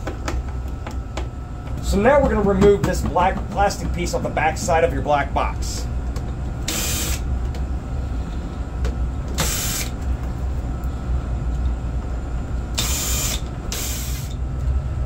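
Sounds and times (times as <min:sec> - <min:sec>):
steady low hum: 0:00.0 - 0:15.0
cordless drill running: 0:06.6 - 0:07.2, 0:09.3 - 0:10.0, 0:12.7 - 0:14.4.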